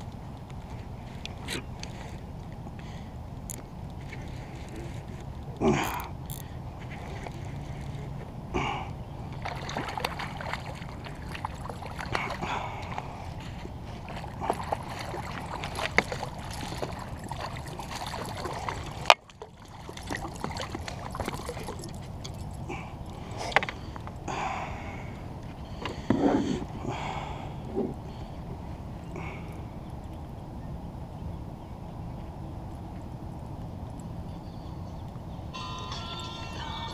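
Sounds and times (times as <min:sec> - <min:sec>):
fish splashing and thrashing: 0:00.1 - 0:24.3.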